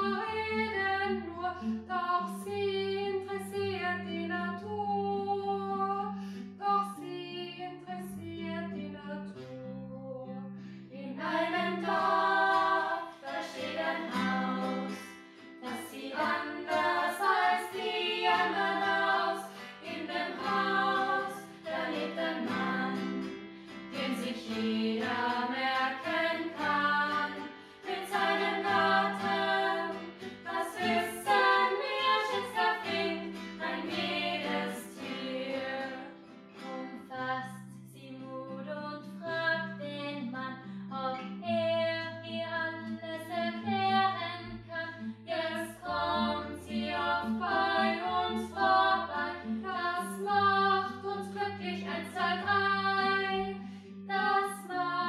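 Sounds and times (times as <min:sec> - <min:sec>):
voices singing a song: 0:11.1 - 0:36.7, 0:45.3 - 0:55.0.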